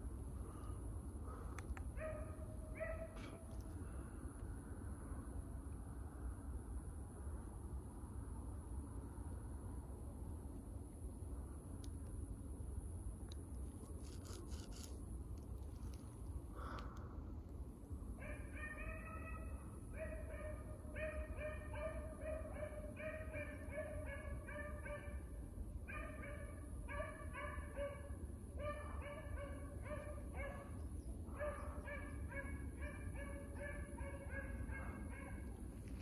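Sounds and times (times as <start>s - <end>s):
hounds barking: 2.0s - 3.5s, 18.2s - 25.3s, 25.9s - 36.0s.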